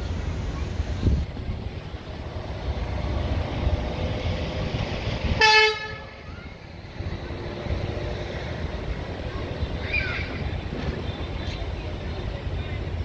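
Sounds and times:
wind rumble on microphone: 0.0 - 12.0
horn toot: 5.4 - 6.2.

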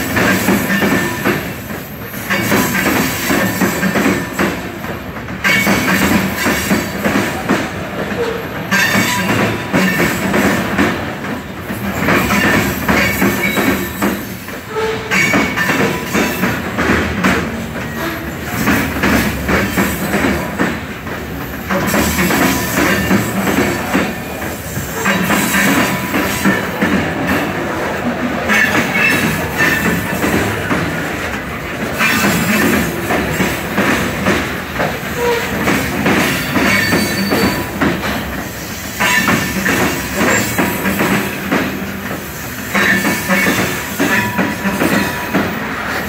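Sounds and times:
train wheels clattering over rails: 0.0 - 46.0
faint wheel squeal: 36.6 - 37.8.

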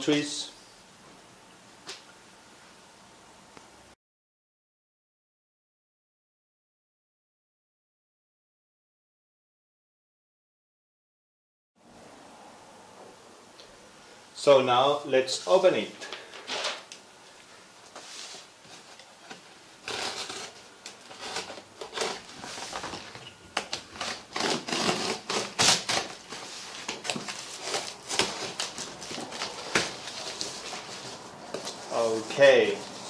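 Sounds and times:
tape tearing: 18.2 - 33.0
utility knife slicing tape and plastic: 19.8 - 22.3, 23.7 - 26.3.

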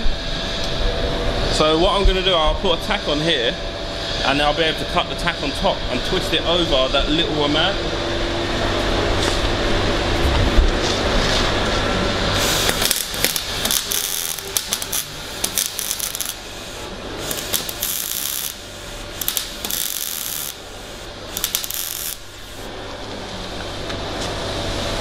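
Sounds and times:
welding arc crackling: 11.0 - 22.7.

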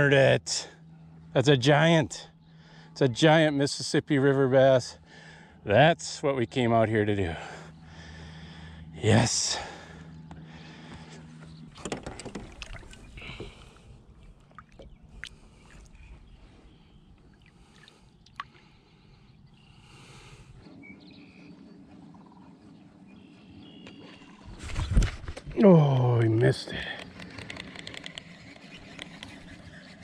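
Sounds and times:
faint low hum: 0.0 - 30.0
knocks on a boat: 11.8 - 12.8
water splashing: 11.8 - 13.7, 14.3 - 15.9.

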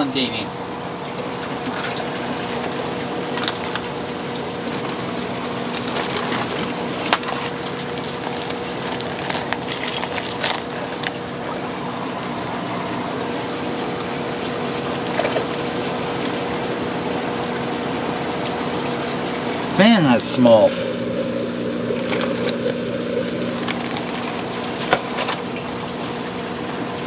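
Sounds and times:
pump hum: 0.0 - 27.0
running water rushing: 1.0 - 27.0
plastic bags crinkling: 5.7 - 11.2, 22.1 - 25.3.

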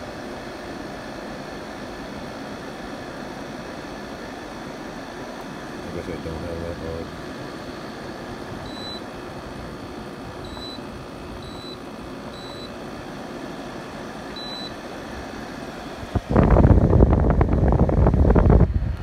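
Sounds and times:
air conditioner humming: 0.0 - 19.0
short high beeps: 8.7 - 9.0, 10.5 - 10.8, 12.4 - 12.7
rush of air on microphone: 16.1 - 19.0.

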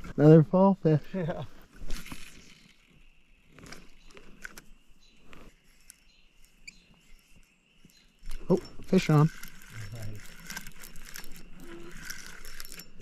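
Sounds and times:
fishing rod and reel clicks: 1.8 - 4.7, 5.3 - 13.0
faint bird chirps: 2.3 - 9.2.

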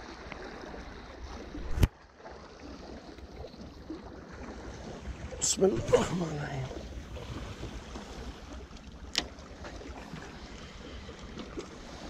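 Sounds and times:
low rumble of wind: 0.0 - 12.0
sea washing on rocks: 2.6 - 12.0.

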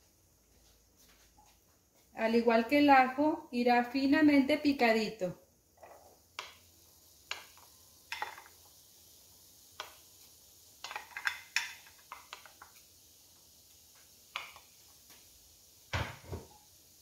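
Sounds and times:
faint sizzle: 0.0 - 17.0
kitchenware clicks and taps: 7.3 - 8.5, 10.8 - 12.7.

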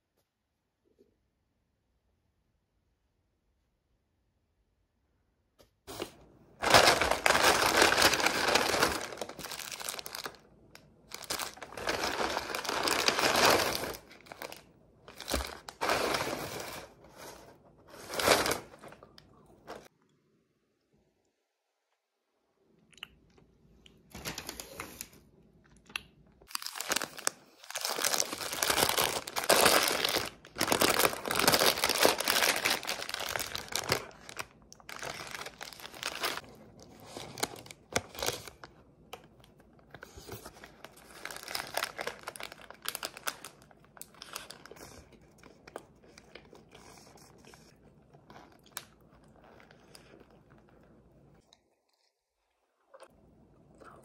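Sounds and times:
paper wrapper crinkling and tearing: 5.9 - 19.9, 26.4 - 50.4.

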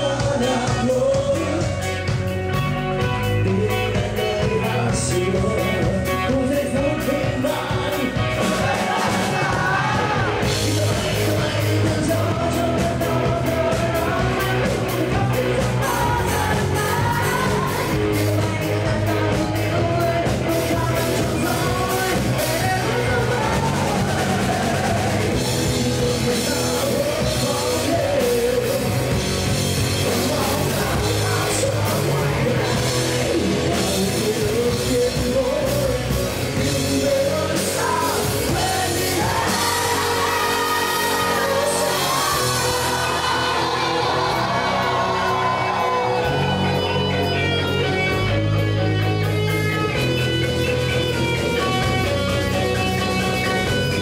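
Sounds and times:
male singer vocals: 0.0 - 2.2, 3.0 - 46.5
drum kit: 0.0 - 54.0
electric guitar: 0.0 - 54.0.

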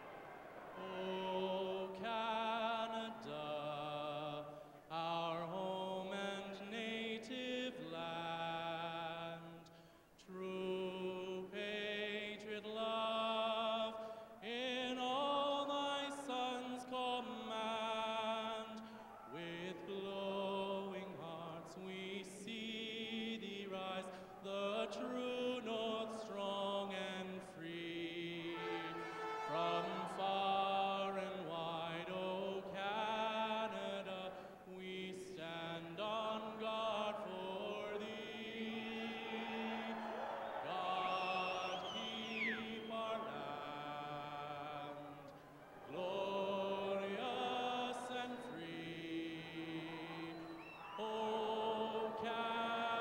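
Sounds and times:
man singing into a microphone: 0.8 - 39.9, 40.6 - 45.3, 45.9 - 53.0.

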